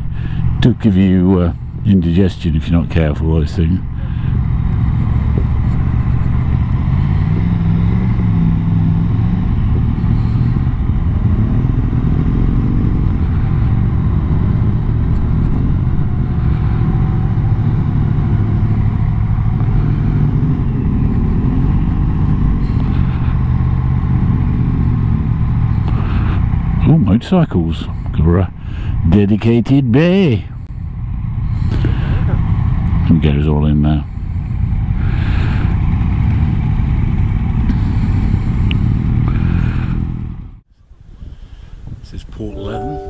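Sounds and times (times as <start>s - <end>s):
motorcycle engine running: 2.8s - 26.8s.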